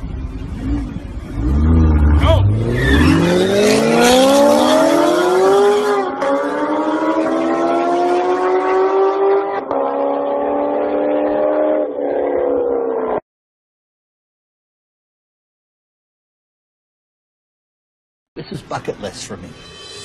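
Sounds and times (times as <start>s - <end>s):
sports car engine accelerating: 0.2s - 13.2s.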